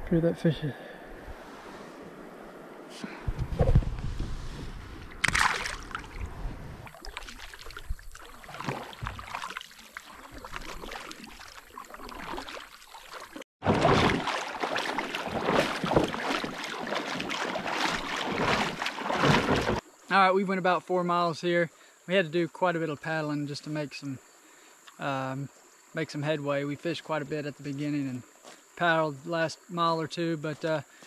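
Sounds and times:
paddle strokes: 2.9 - 19.8
water splashing around a kayak: 5.1 - 19.9.

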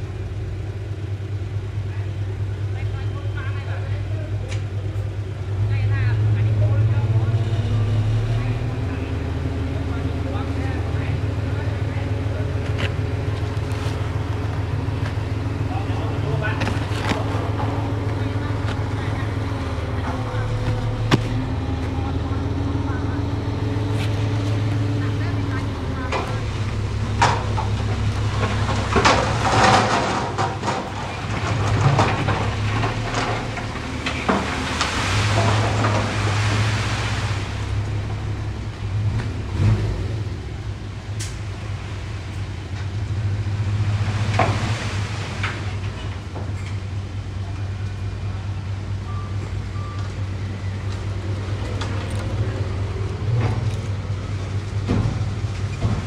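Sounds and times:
diesel construction machinery running: 0.0 - 56.0
knocks and clatter: 26.0 - 37.3, 51.6 - 56.0.

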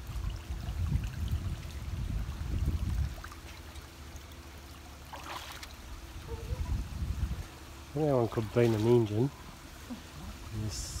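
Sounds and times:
wind buffeting microphone: 0.0 - 3.5, 5.9 - 8.6.

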